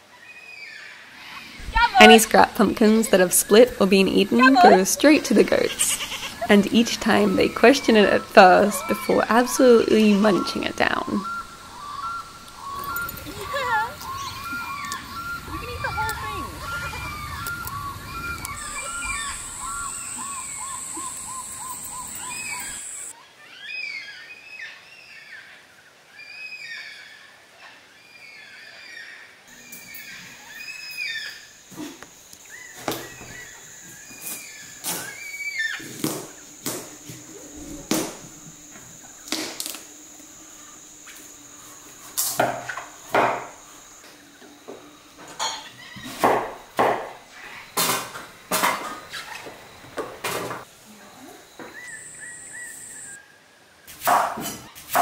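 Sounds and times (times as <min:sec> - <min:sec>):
steady high-pitched drone: 0:01.6 - 0:23.1, 0:35.9 - 0:45.9
bird chirps and whistles: 0:07.0 - 0:23.1.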